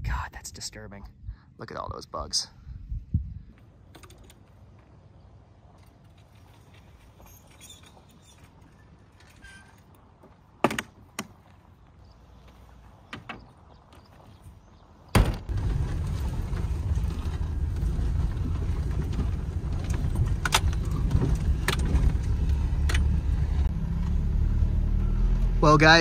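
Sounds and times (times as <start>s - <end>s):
truck driving on dirt track: 13.5s - 26.0s.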